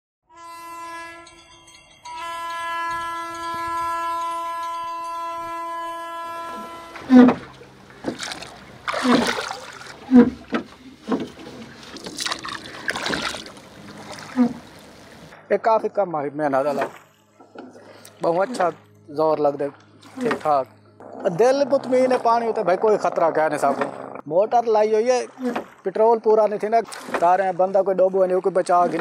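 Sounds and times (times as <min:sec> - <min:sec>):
oars splashing in water: 0:05.2 - 0:15.4, 0:20.0 - 0:22.4, 0:25.1 - 0:26.0, 0:26.6 - 0:29.0.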